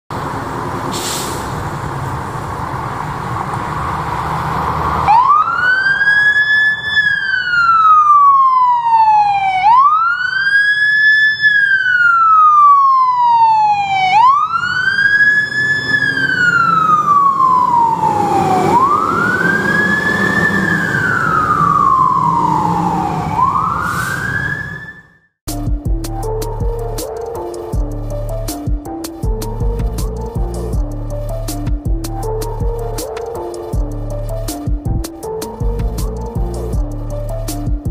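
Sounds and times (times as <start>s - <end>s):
engine rumble: 0.1s - 7.7s, 25.5s - 37.9s
street noise: 0.1s - 37.9s
fire engine siren wailing: 0.2s - 25.3s.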